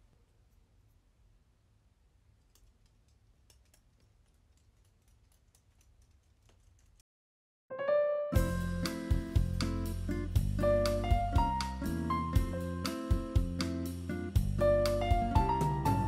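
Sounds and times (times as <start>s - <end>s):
piano music: 7.7s - 16.0s.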